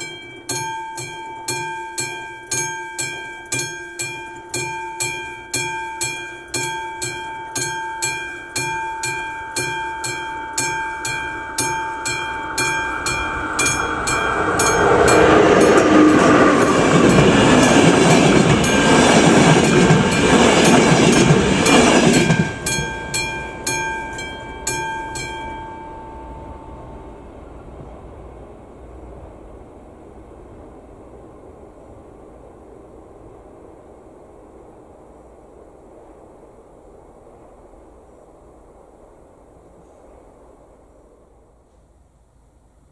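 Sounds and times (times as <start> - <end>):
level crossing bell ringing: 0.0 - 27.1
passenger train rushing past: 0.0 - 42.1.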